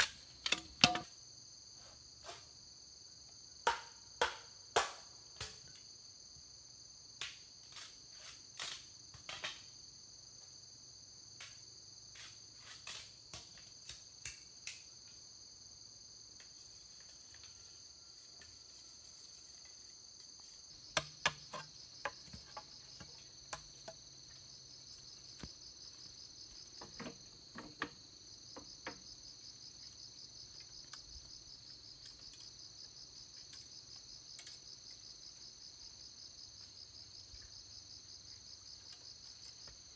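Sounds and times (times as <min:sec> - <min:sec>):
insects chirping: 0:00.0 - 0:39.9
sharp knocks and clicks: 0:00.4 - 0:01.1.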